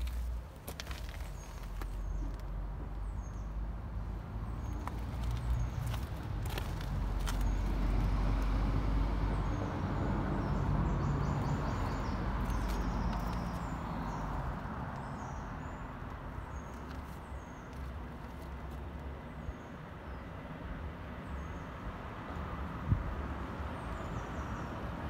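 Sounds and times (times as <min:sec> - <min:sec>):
footsteps on gravel: 0:00.0 - 0:02.4, 0:04.6 - 0:08.2, 0:11.7 - 0:14.4, 0:16.6 - 0:18.9.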